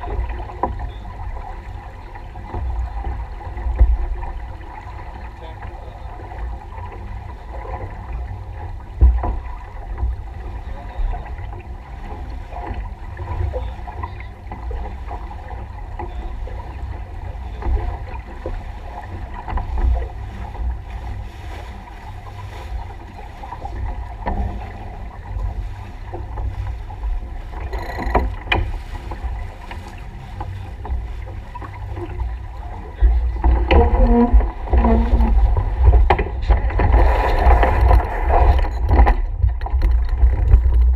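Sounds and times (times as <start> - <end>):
water rushing past hull: 0.0 - 40.9
wind buffeting microphone: 0.0 - 40.9
crew moving on deck: 27.6 - 28.8.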